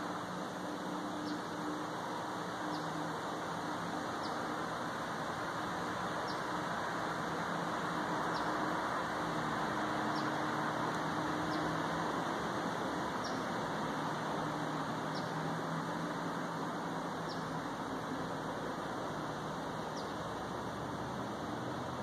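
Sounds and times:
bird chirping: 0:01.1 - 0:01.8, 0:02.6 - 0:03.0, 0:04.0 - 0:04.6, 0:06.2 - 0:06.6, 0:08.3 - 0:08.6, 0:10.0 - 0:10.5, 0:11.3 - 0:11.8, 0:13.2 - 0:13.6, 0:15.0 - 0:15.5, 0:17.2 - 0:17.6, 0:19.8 - 0:20.3.

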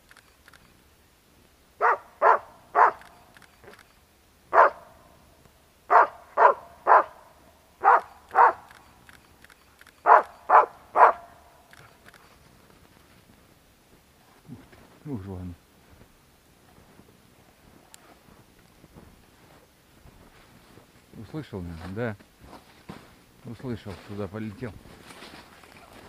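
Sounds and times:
dog barking: 0:01.8 - 0:03.1, 0:04.5 - 0:04.9, 0:05.9 - 0:07.2, 0:07.8 - 0:08.7, 0:10.0 - 0:11.4.

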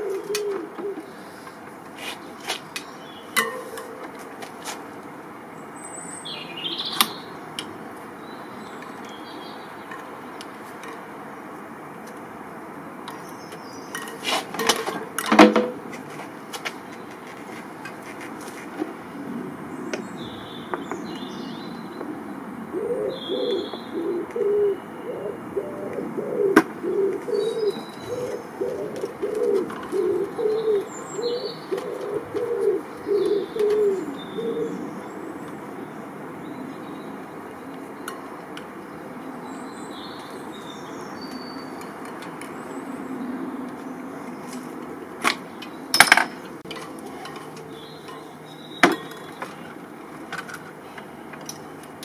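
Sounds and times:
pigeon cooing: 0:00.0 - 0:02.2, 0:22.6 - 0:35.0
small birds chirping: 0:00.0 - 0:15.2, 0:19.6 - 0:52.0.

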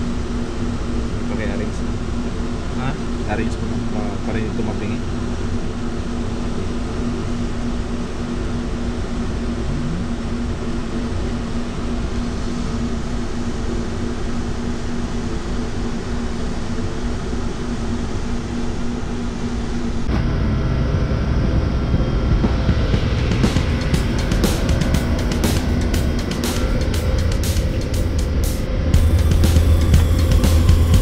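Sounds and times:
shipboard machinery hum: 0:00.0 - 0:31.0
deep rumble: 0:09.4 - 0:11.0, 0:18.6 - 0:31.0
low tones: 0:09.5 - 0:10.5, 0:20.0 - 0:31.0.

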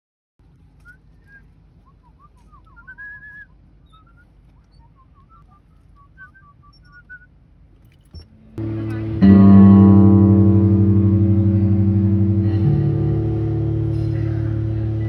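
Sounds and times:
faint low rumble: 0:08.2 - 0:15.0.

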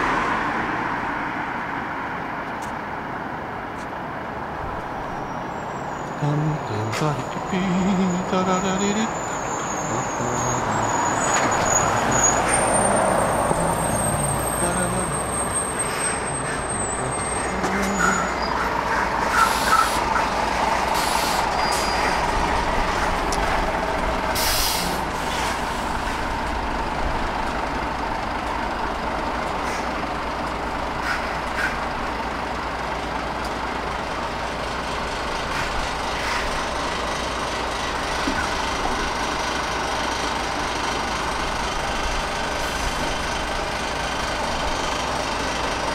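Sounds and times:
heavy lorries passing: 0:00.0 - 0:45.9
air brake hisses: 0:19.3 - 0:20.1, 0:20.9 - 0:22.0, 0:24.4 - 0:26.2.

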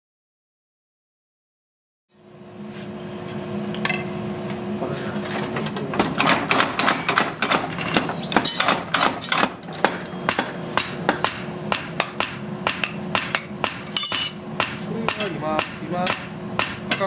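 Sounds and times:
steady low hum: 0:02.2 - 0:17.0
hammer striking hot steel on anvil: 0:06.0 - 0:17.0.

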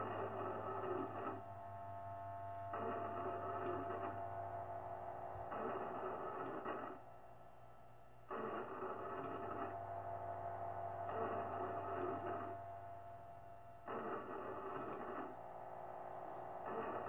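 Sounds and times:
steady low hum: 0:00.0 - 0:17.0
steady tone: 0:09.6 - 0:17.0.

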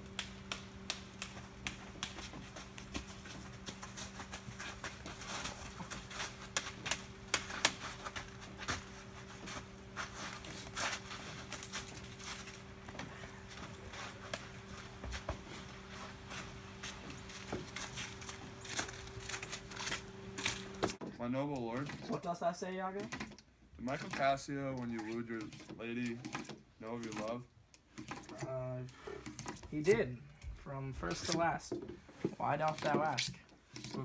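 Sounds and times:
steady low hum: 0:00.0 - 0:22.4
footsteps in wet snow: 0:00.8 - 0:21.0.

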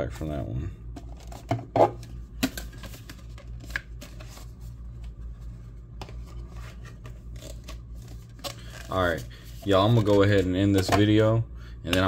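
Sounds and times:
trading cards rustling: 0:01.0 - 0:11.1.

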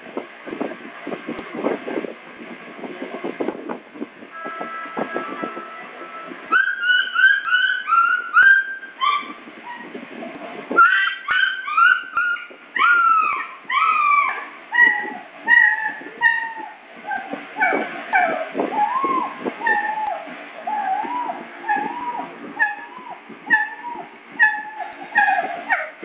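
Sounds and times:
puppy yelping: 0:06.5 - 0:09.9, 0:10.8 - 0:26.0.

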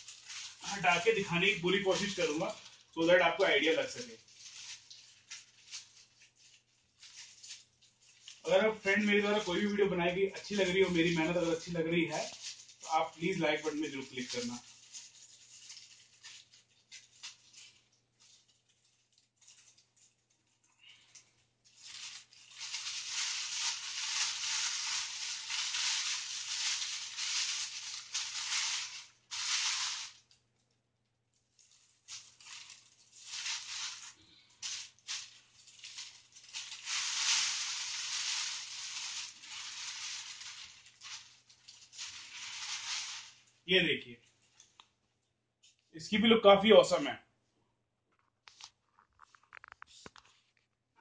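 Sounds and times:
plastic bag crinkling and rustling: 0:00.0 - 0:45.0, 0:48.1 - 0:50.8.

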